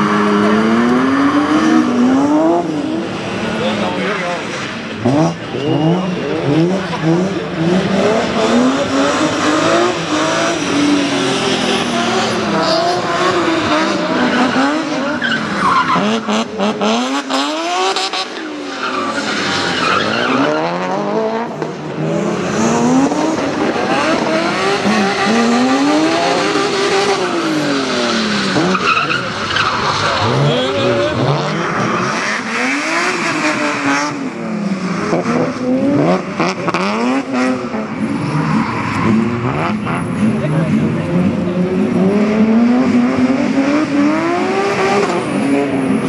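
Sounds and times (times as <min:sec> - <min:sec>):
car engines revving hard: 0:00.0 - 0:46.0
tyres skidding on wet tarmac: 0:06.2 - 0:41.1.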